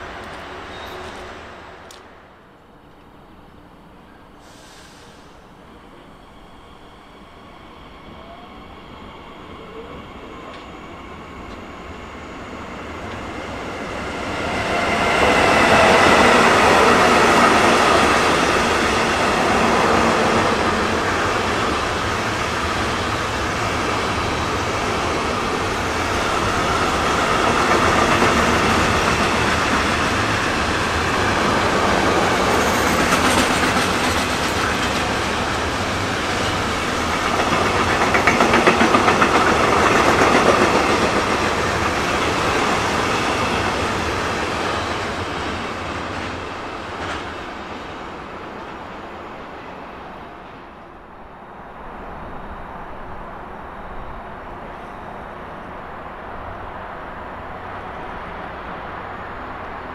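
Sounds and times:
train wheels clickety-clack on rails: 0:00.0 - 0:02.2, 0:09.6 - 0:50.6
freight train passing: 0:00.0 - 0:59.9.

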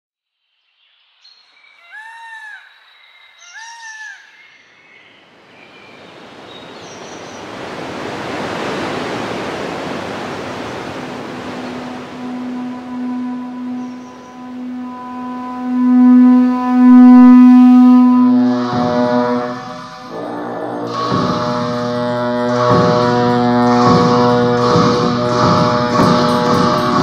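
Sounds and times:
bird calls: 0:01.6 - 0:08.1, 0:10.5 - 0:15.1
rush of wind: 0:05.3 - 0:13.8
low steady musical tone: 0:11.1 - 0:27.0.

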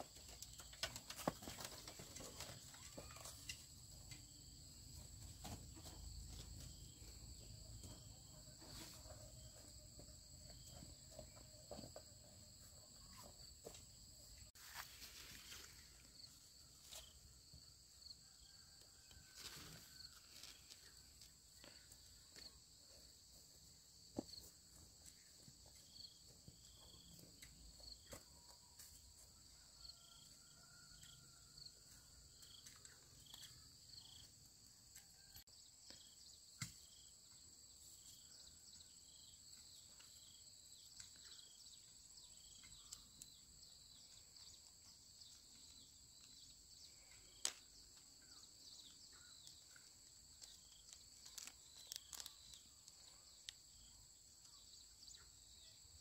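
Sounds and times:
rustles: 0:14.4 - 0:17.3, 0:19.0 - 0:22.0.

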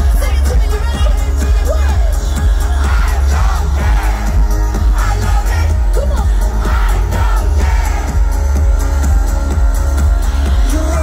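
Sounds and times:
heavy bass beat: 0:00.0 - 0:11.0
pop music through a pa: 0:00.0 - 0:11.0
person singing: 0:05.0 - 0:11.0.

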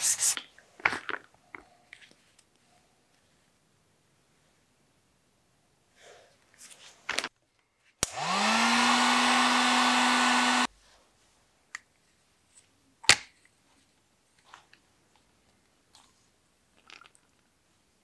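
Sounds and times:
heat gun fan blowing: 0:08.0 - 0:10.7.

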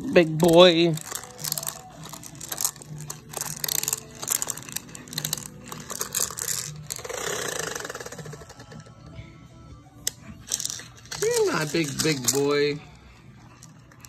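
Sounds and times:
plastic bead toy rattling: 0:00.2 - 0:08.8, 0:10.4 - 0:12.8.

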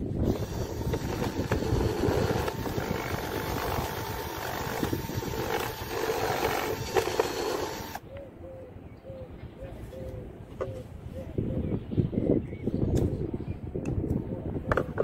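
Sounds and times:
cordless drill cutting wood: 0:00.0 - 0:08.0.

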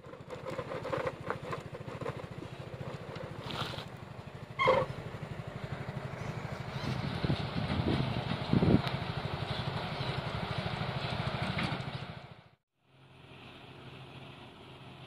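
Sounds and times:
truck diesel engine running: 0:00.0 - 0:15.0.

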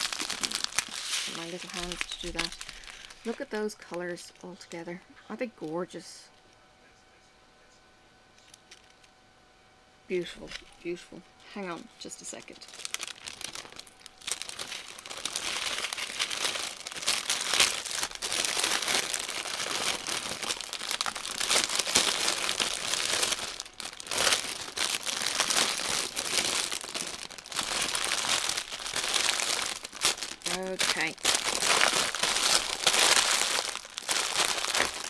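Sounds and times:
plastic bag crinkling: 0:00.0 - 0:04.8, 0:11.7 - 0:35.0.

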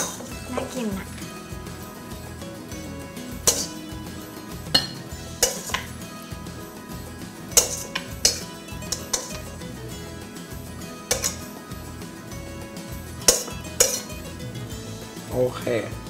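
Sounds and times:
utensil clinking on metal bowl: 0:03.4 - 0:03.8, 0:04.7 - 0:06.0, 0:07.5 - 0:09.5, 0:11.0 - 0:11.5, 0:13.2 - 0:14.2.

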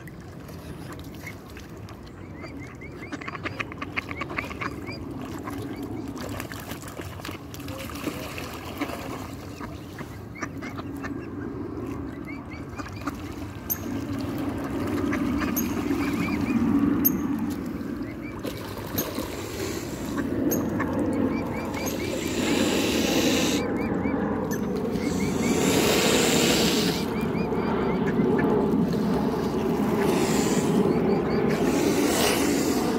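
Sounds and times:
ducks splashing in water: 0:00.0 - 0:32.9
water rushing: 0:13.0 - 0:32.9.

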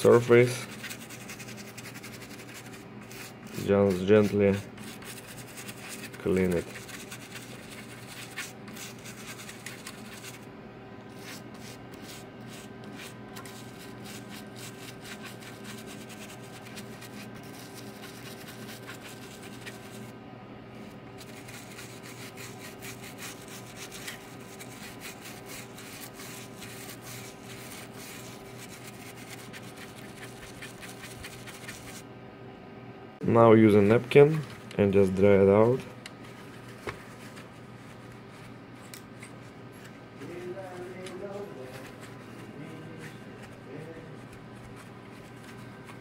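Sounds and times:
toothbrush scrubbing circuit board: 0:00.2 - 0:10.4, 0:11.1 - 0:20.1, 0:21.2 - 0:32.0.

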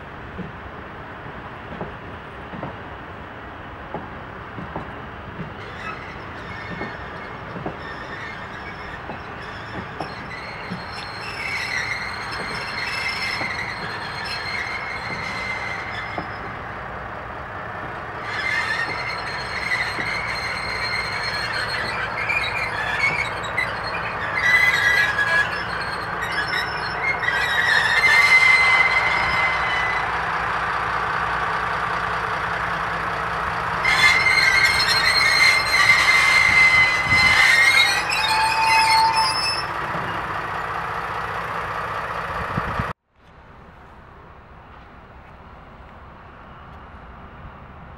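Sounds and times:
locomotive engine and wheels rumbling: 0:00.0 - 0:47.9
high-pitched wheel squeals: 0:05.6 - 0:16.6, 0:18.2 - 0:30.5, 0:33.8 - 0:40.3.

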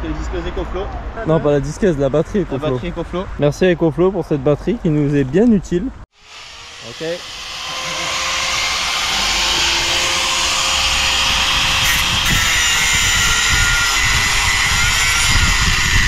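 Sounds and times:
angle grinder cutting concrete: 0:06.2 - 0:16.0.

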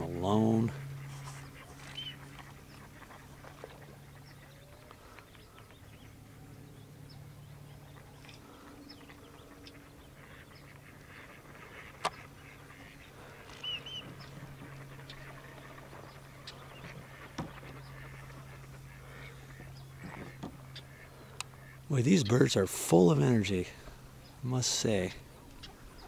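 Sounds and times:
ducks quacking faintly: 0:00.0 - 0:26.0
low steady hum: 0:00.0 - 0:26.0
bird chirps: 0:00.8 - 0:03.0, 0:12.1 - 0:22.4.

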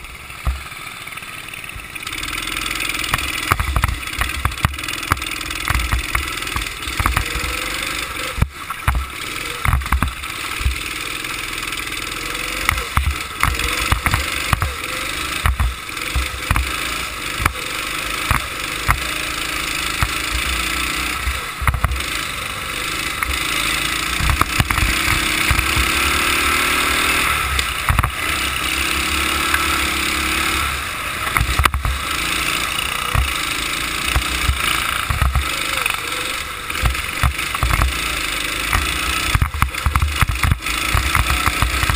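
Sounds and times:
go-kart engine running: 0:00.0 - 0:41.9
knocks and thumps through chassis: 0:00.4 - 0:00.7, 0:03.0 - 0:07.6, 0:08.2 - 0:10.9, 0:12.6 - 0:17.6, 0:18.2 - 0:22.2, 0:24.1 - 0:26.2, 0:27.5 - 0:28.4, 0:31.2 - 0:32.1, 0:33.0 - 0:36.0, 0:36.7 - 0:41.9.

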